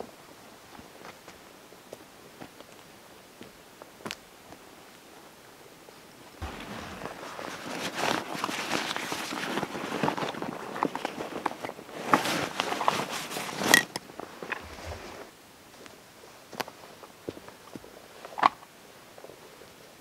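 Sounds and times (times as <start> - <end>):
backpack fabric rustling: 6.4 - 15.3.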